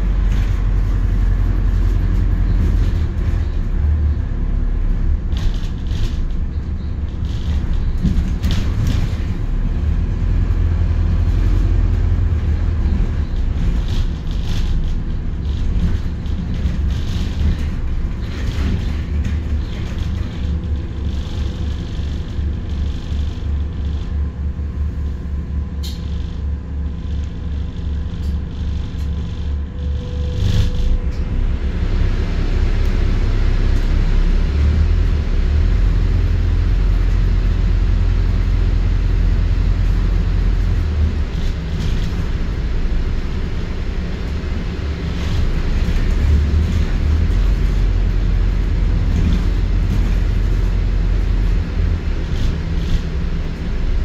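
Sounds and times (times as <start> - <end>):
road noise: 0.0 - 27.6, 28.2 - 54.0
diesel bus engine: 0.0 - 54.0.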